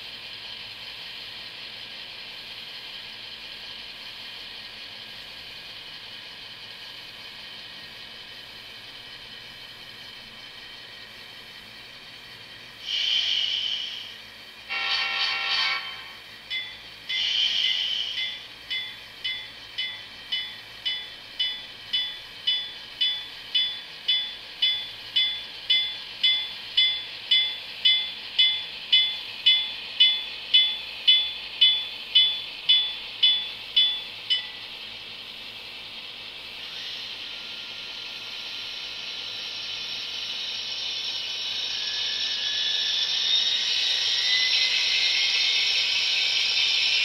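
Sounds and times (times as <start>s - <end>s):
turbine hiss spooling up: 3.5s - 47.0s
locomotive bell ringing: 14.7s - 34.7s.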